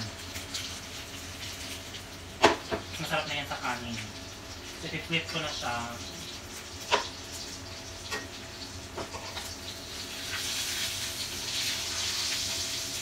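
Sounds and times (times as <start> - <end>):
chicken sizzling in frying pan: 0.0 - 13.0.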